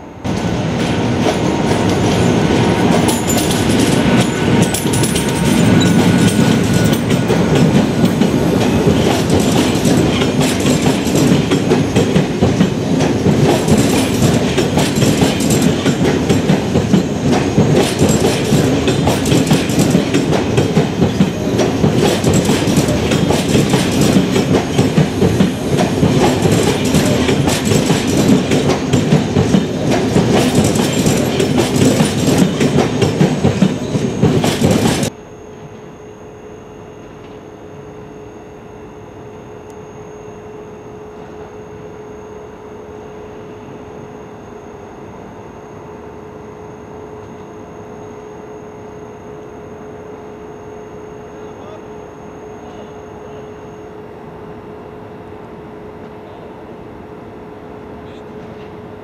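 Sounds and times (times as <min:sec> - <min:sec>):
train wheels rumbling: 0:00.0 - 0:35.2.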